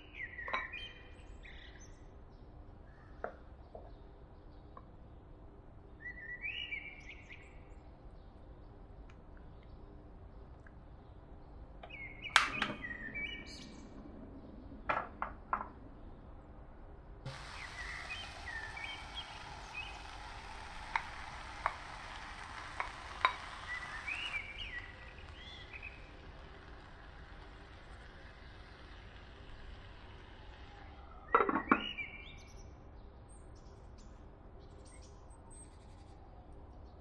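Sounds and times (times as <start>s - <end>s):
batter sizzling in frying pan: 17.3s - 31.2s
birds chirping: 17.3s - 32.5s.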